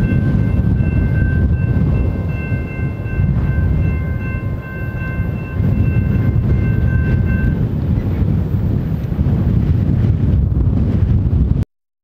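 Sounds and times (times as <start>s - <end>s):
crossing warning bell ringing: 0.0s - 9.0s
heavy low rumble: 0.0s - 11.6s.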